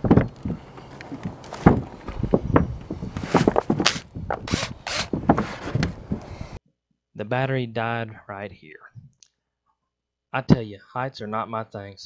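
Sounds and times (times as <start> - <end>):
knocks and thumps on metal roof: 0.0 - 6.2
rattling hiss bursts: 3.8 - 5.2.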